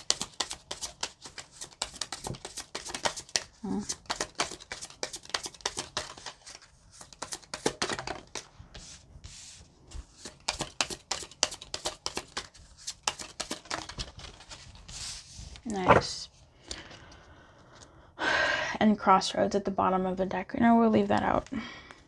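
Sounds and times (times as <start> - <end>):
cards being shuffled: 0.0 - 8.9, 10.0 - 16.1.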